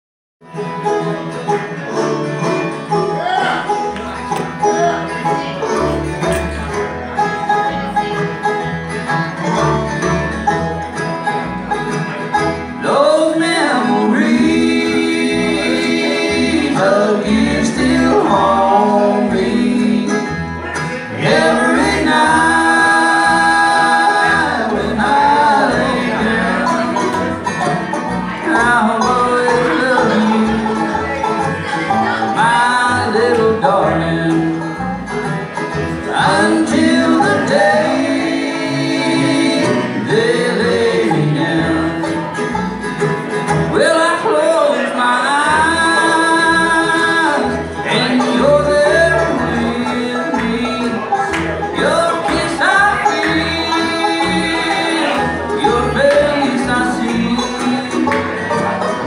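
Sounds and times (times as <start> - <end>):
bluegrass band playing: 0.4 - 59.0
person singing: 12.4 - 34.8, 36.0 - 42.5, 43.6 - 59.0.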